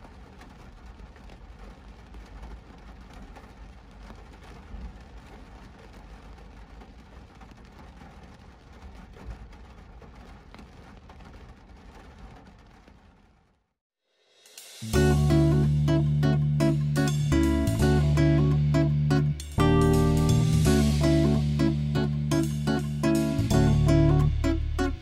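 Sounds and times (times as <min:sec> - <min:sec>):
rain on car windscreen: 0:00.0 - 0:13.7
low engine rumble: 0:14.9 - 0:25.0.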